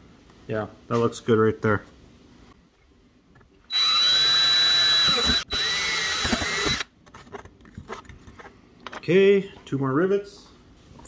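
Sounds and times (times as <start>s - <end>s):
cordless drill boring through metal: 3.7s - 6.9s.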